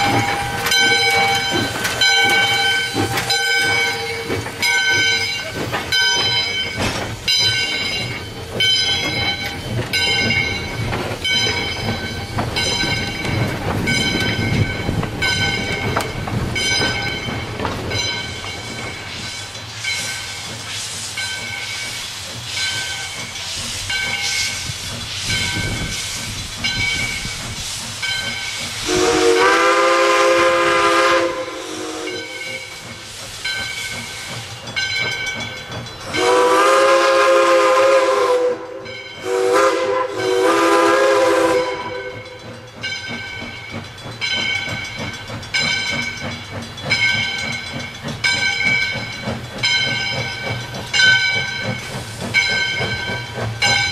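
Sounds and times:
steam hissing from locomotive: 0.0 - 53.9
steam whistle chord: 28.8 - 32.6, 36.2 - 42.4.

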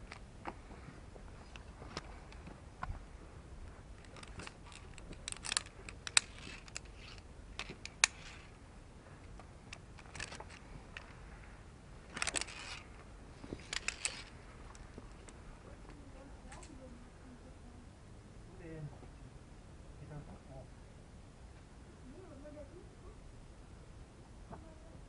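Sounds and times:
carabiners clicking on steel cable: 4.0 - 8.6, 9.7 - 11.2, 12.1 - 15.4
climbing gear scraping: 4.0 - 8.6, 10.0 - 11.2, 12.1 - 15.4.

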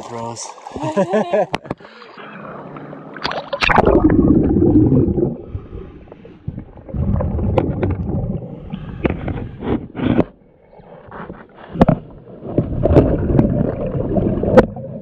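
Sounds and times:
underwater exhaled bubbles: 2.4 - 9.7, 11.7 - 15.0.

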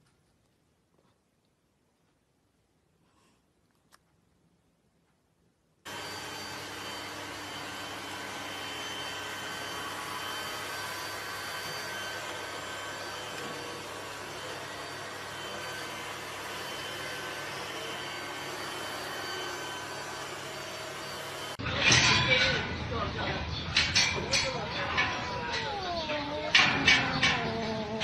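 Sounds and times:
robot vacuum cleaner whirring: 5.9 - 21.6.

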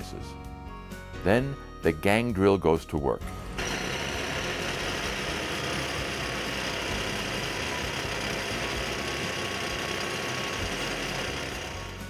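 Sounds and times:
drill boring into concrete: 3.6 - 12.0.

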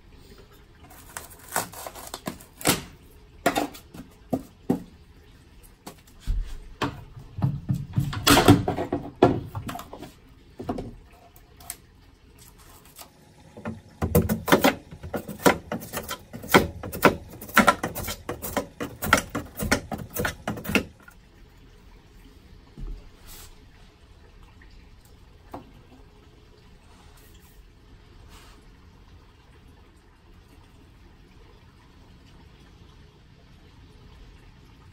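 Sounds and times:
hand tools knocking and scraping wood: 5.9 - 11.0, 13.5 - 21.1.

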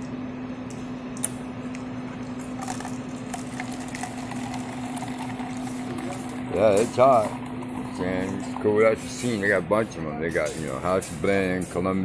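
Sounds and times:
coffee machine humming: 0.0 - 12.0
coffee flowing into cup: 2.1 - 9.6.

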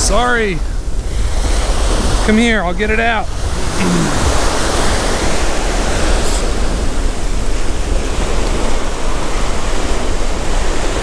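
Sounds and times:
waves breaking on beach: 0.0 - 11.0.

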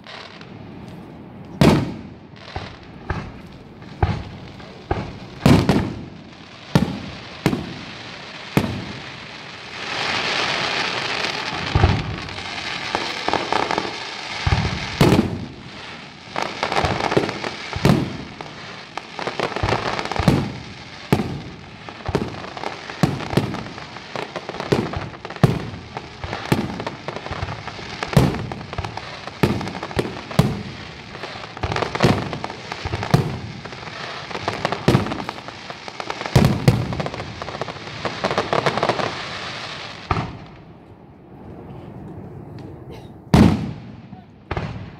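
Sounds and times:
firework shells bursting: 0.0 - 23.6
firework hissing: 0.0 - 40.5.

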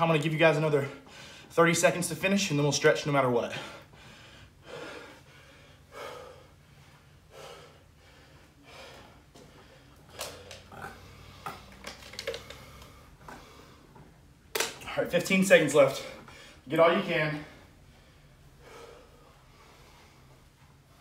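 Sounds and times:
person breathing hard: 1.0 - 1.5, 3.4 - 14.0, 16.0 - 16.7, 17.4 - 21.0.

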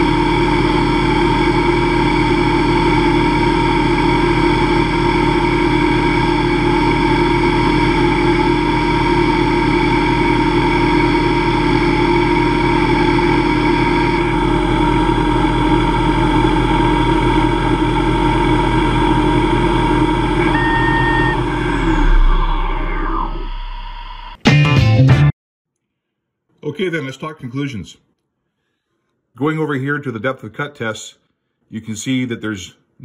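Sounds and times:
lathe machine whine: 0.0 - 24.4.

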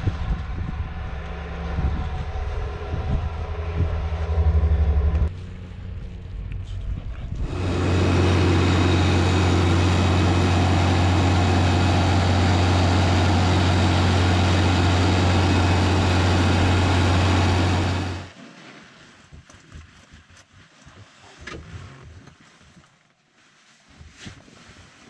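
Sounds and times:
tractor diesel engine drone: 0.0 - 18.3.

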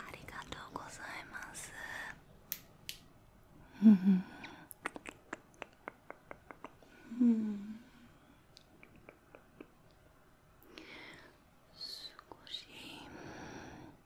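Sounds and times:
person humming: 3.8 - 5.2, 5.8 - 8.0.

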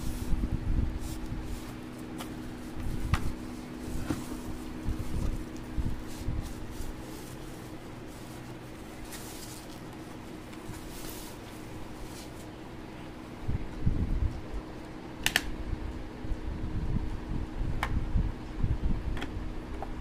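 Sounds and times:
steady low hum: 0.0 - 20.0
plastic crinkling: 1.0 - 12.6.

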